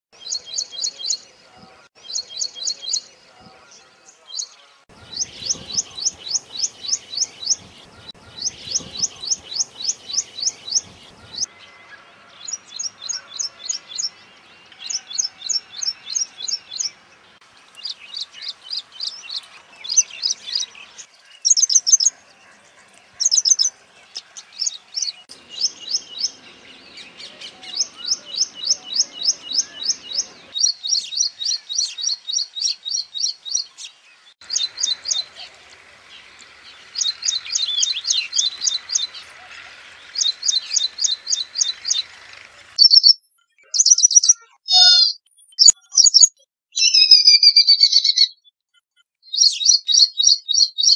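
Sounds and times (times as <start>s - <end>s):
bird singing high repeated notes: 42.8s - 48.5s.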